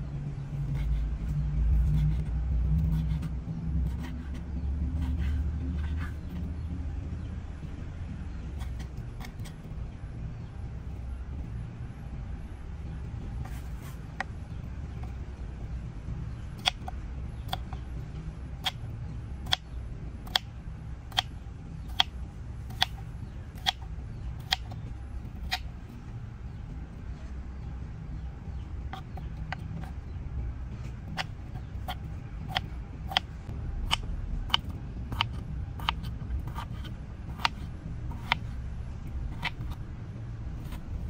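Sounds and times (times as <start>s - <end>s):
steady low rumble: 0.0s - 41.0s.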